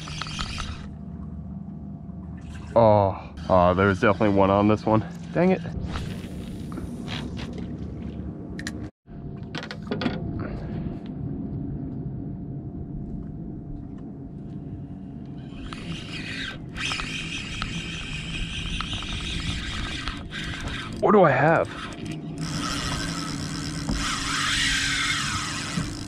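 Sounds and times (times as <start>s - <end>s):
spinning reel whirring: 0.0s - 0.9s, 3.4s - 5.7s, 15.4s - 26.0s
steady low rumble: 0.0s - 16.9s.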